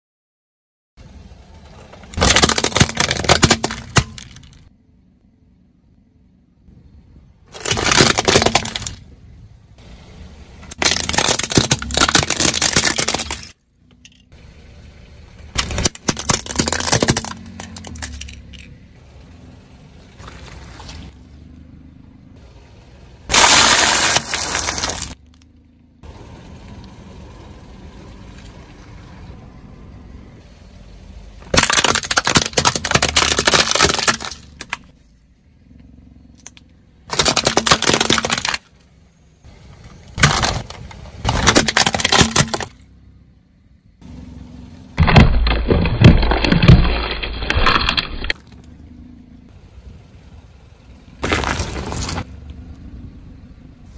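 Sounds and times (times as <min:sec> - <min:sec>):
plastic cracking and breaking: 0:02.0 - 0:04.6, 0:07.6 - 0:09.0, 0:10.7 - 0:13.6, 0:15.6 - 0:18.6, 0:31.5 - 0:34.9, 0:36.4 - 0:38.7, 0:40.2 - 0:42.8, 0:45.0 - 0:48.5
tyre rolling on asphalt: 0:51.2 - 0:52.4.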